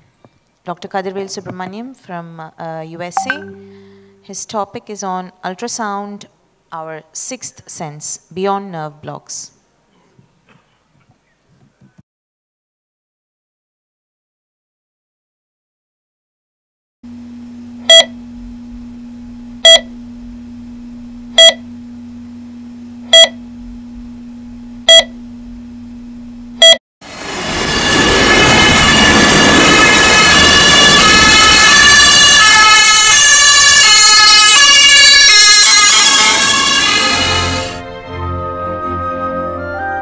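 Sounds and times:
patient monitor beeping: 0:03.2 - 0:04.3, 0:17.8 - 0:18.3, 0:19.6 - 0:20.1, 0:21.3 - 0:21.8, 0:23.0 - 0:23.5, 0:24.8 - 0:25.3, 0:26.6 - 0:26.8
steady low hum: 0:17.1 - 0:26.6
music: 0:36.9 - 0:40.0.

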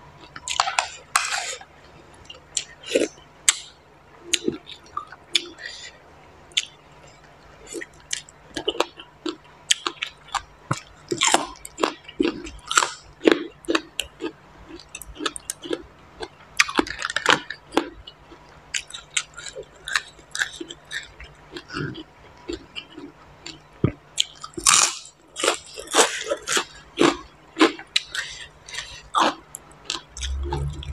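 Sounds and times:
wet chewing and smacking: 0:06.5 - 0:30.6.

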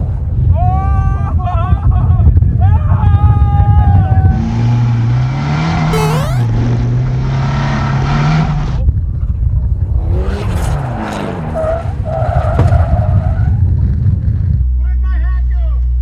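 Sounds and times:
tyres skidding on dirt: 0:09.8 - 0:13.9.

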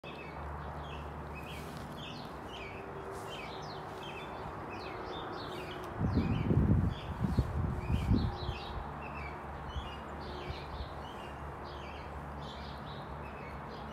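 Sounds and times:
small birds chirping: 0:00.0 - 0:13.9
low rumbling on microphone: 0:03.2 - 0:09.0.

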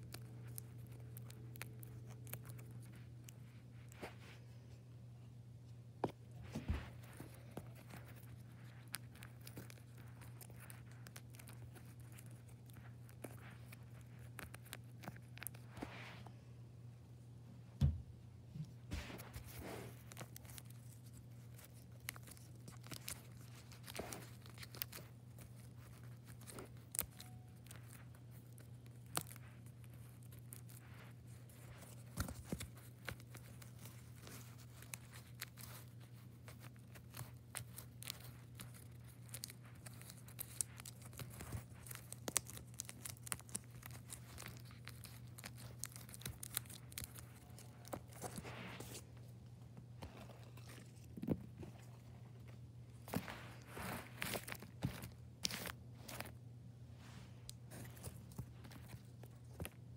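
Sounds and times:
cardboard fidget crinkling: 0:06.5 - 0:15.8, 0:19.1 - 0:49.2.

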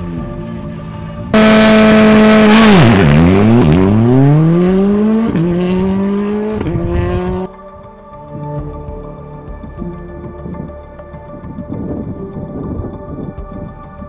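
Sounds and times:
rally car engine revving: 0:00.0 - 0:07.5.

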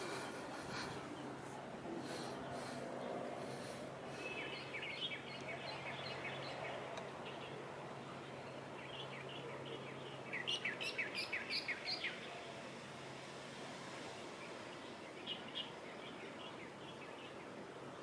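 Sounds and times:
small songbird chirping: 0:04.2 - 0:12.4, 0:14.4 - 0:17.6.

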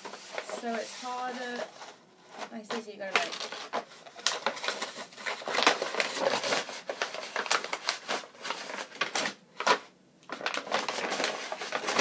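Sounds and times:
cardboard tube crinkling: 0:00.0 - 0:12.0
cardboard tube cracking: 0:02.7 - 0:12.0.

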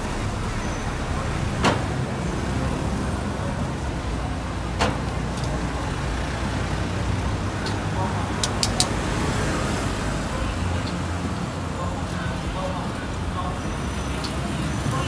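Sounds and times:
street traffic rumble: 0:00.0 - 0:15.0
sharp clicks: 0:07.6 - 0:09.2.

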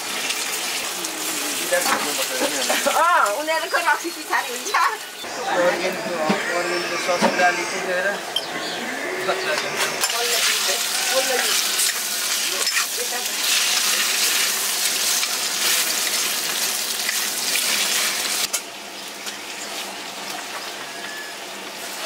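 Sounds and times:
food sizzling in a pan: 0:00.0 - 0:05.8, 0:10.0 - 0:22.0.

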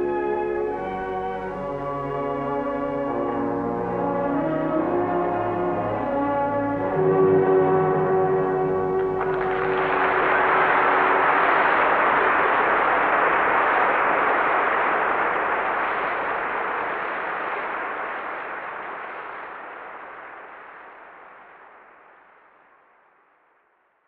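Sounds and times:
audience applauding: 0:08.9 - 0:20.4.

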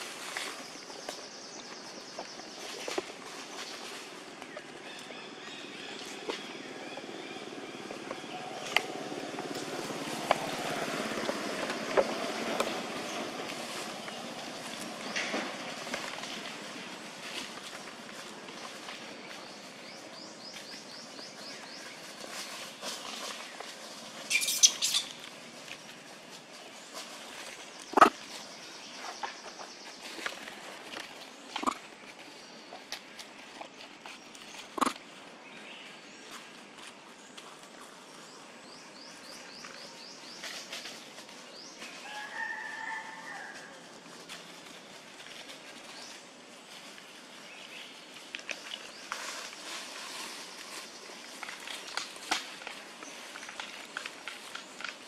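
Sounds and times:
birds chirping: 0:00.0 - 0:42.1
sharp high bird calls: 0:24.3 - 0:25.2
rooster crowing: 0:42.0 - 0:43.9.

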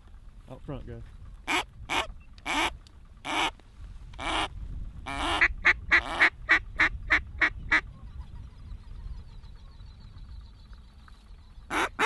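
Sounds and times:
waterfowl call notes: 0:11.7 - 0:12.0.

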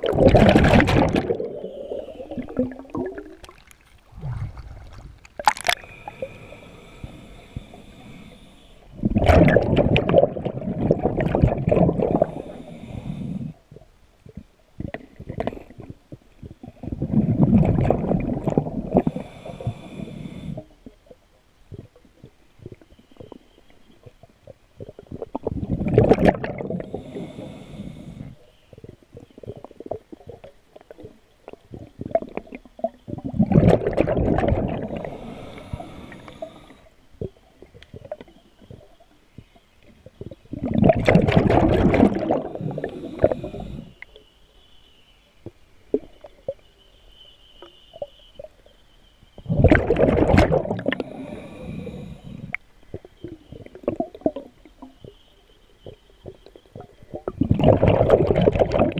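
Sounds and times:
diver exhaling bubbles: 0:00.0 - 0:13.8, 0:14.8 - 0:20.7, 0:24.8 - 0:30.5, 0:31.7 - 0:37.4, 0:40.2 - 0:44.0, 0:49.5 - 0:52.6, 0:57.1 - 0:58.9
regulator inhalations: 0:05.7 - 0:09.0, 0:12.0 - 0:13.6, 0:18.8 - 0:20.8, 0:26.8 - 0:28.7, 0:34.7 - 0:37.1, 0:42.2 - 0:44.2, 0:50.8 - 0:52.7.

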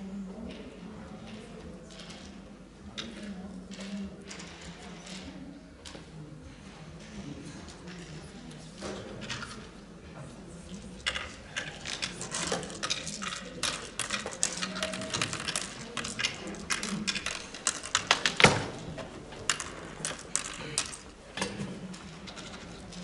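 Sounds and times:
game counters clicking on wooden board: 0:11.0 - 0:23.0.

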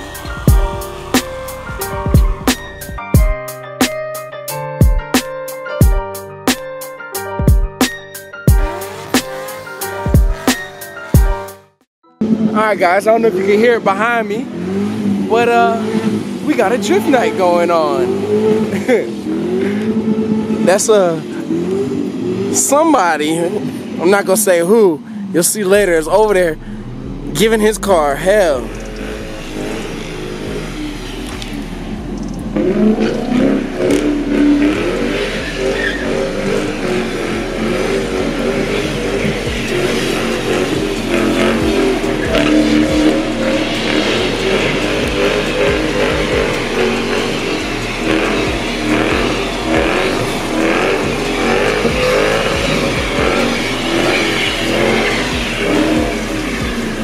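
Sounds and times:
car engine revving hard: 0:00.0 - 0:03.4, 0:08.6 - 0:11.4, 0:12.2 - 0:57.0
tyre squeal: 0:28.1 - 0:57.0.

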